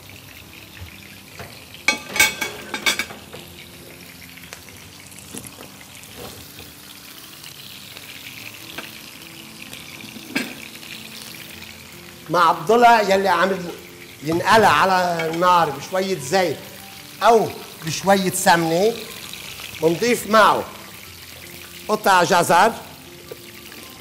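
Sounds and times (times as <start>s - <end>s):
meat sizzling in a frying pan: 0.0s - 24.0s.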